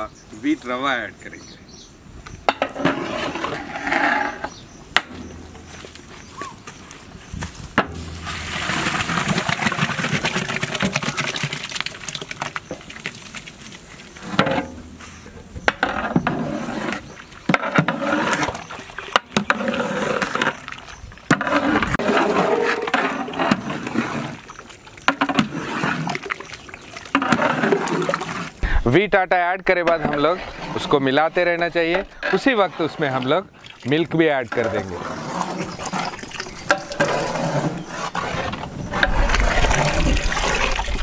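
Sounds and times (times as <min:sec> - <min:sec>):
paddle stirring and sloshing: 0:07.5 - 0:41.0
rush of liquid pouring: 0:08.0 - 0:14.4, 0:21.5 - 0:28.8, 0:38.2 - 0:41.0.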